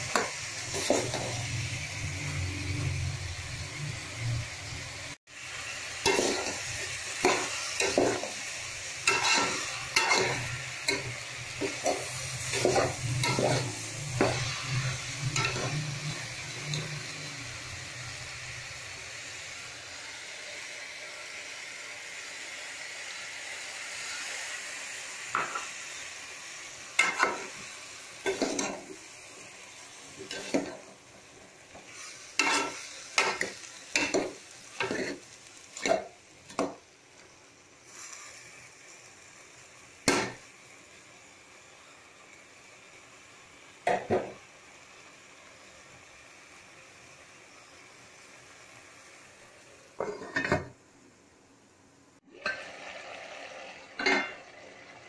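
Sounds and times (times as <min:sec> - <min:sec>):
vegetables sizzling in a pot: 0:00.0 - 0:55.0
metal spoon scraping a pot: 0:09.1 - 0:15.9, 0:32.4 - 0:34.2.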